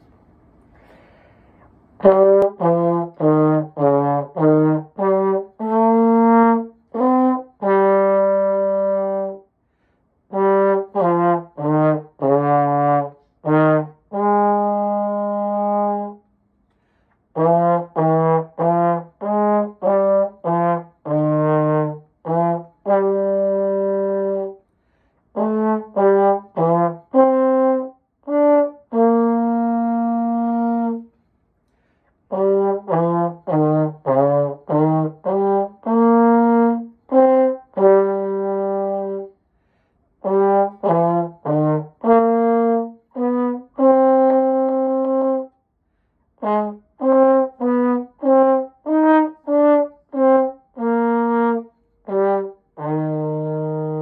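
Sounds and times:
breath between phrases: 0.6 - 1.7, 9.6 - 10.1, 24.7 - 25.3, 31.7 - 32.2, 39.5 - 40.1
solo slide trombone: 2.0 - 9.5, 10.3 - 16.3, 17.3 - 24.6, 25.3 - 31.2, 32.3 - 39.4, 40.2 - 45.6, 46.3 - 54.0.

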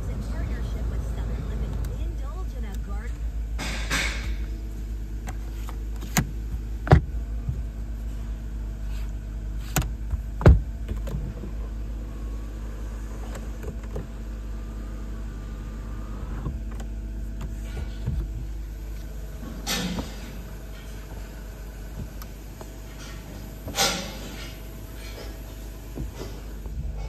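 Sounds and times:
steady low hum: 0.0 - 27.0
sunroof motor whine: 0.0 - 27.0
sun visor clicks and knocks: 5.2 - 7.7, 9.6 - 11.3.

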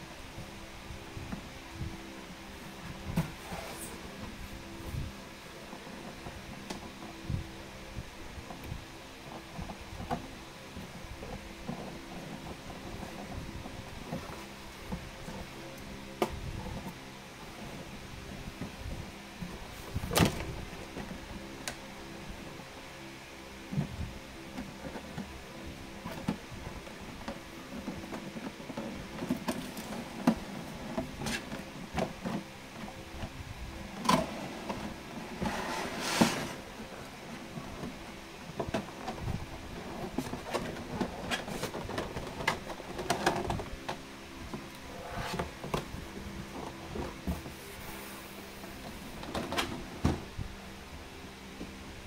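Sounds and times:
faint steady hum: 0.0 - 52.0
packaging rustling and scraping: 26.0 - 43.9, 44.6 - 50.0.

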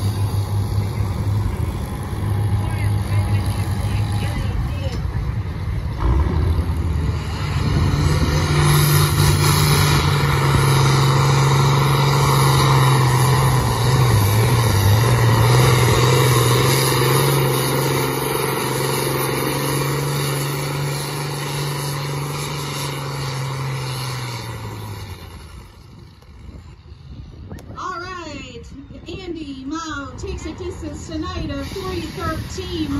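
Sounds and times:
tractor diesel engine at high revs: 0.0 - 26.9.

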